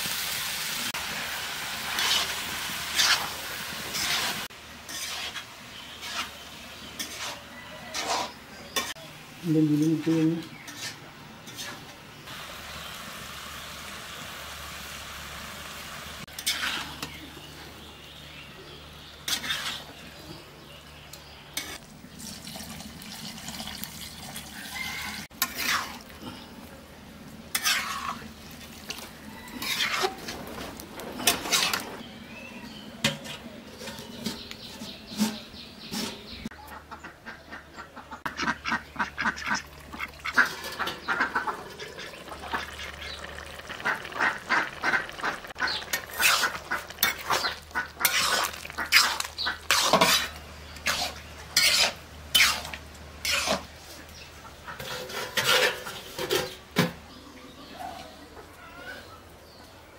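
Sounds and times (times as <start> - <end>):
cooking sounds: 0.0 - 59.8
ducks quacking: 36.5 - 49.8.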